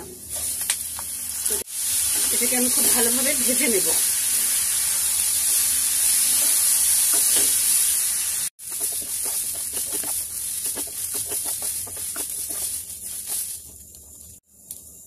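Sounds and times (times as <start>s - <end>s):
rice sizzling in oil: 0.0s - 15.0s
wooden spoon scraping pan: 8.6s - 13.8s.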